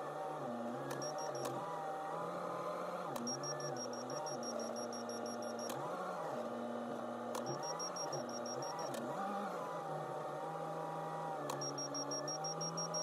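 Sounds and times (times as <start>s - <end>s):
rapid electronic beeping: 1.0s - 1.4s, 3.3s - 5.7s, 7.5s - 8.9s, 11.6s - 13.0s.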